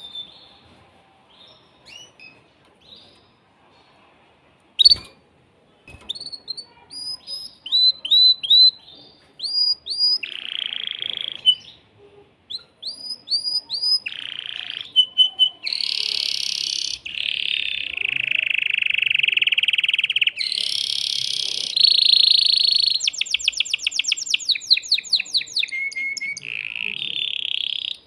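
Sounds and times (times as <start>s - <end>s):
canary singing: 4.8s - 5.2s, 5.9s - 11.8s, 12.5s - 28.0s.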